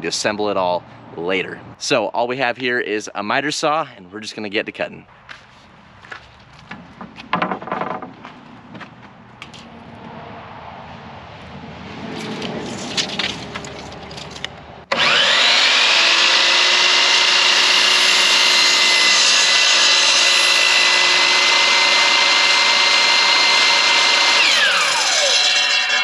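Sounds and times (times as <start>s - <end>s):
knocks of wood handled: 6.6s - 8.9s
miter saw cutting wood: 14.9s - 26.0s.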